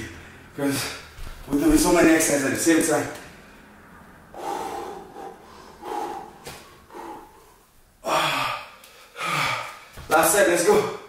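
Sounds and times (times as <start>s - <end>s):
man breathing hard: 3.2s - 10.0s.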